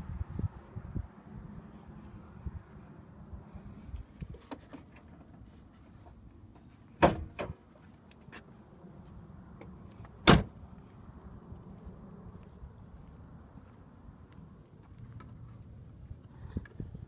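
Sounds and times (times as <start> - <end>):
car door slamming: 7.0 - 7.6, 10.2 - 10.5.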